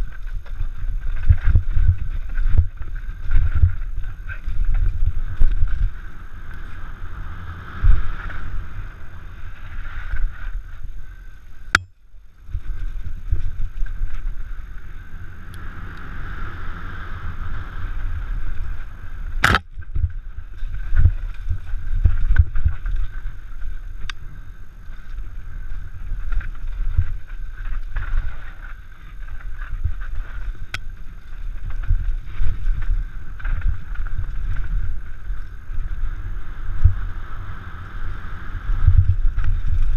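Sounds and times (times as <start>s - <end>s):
wind buffeting microphone: 0.0s - 39.9s
sharp clicks: 19.4s - 19.8s
bike thumping and rattling: 19.4s - 23.2s.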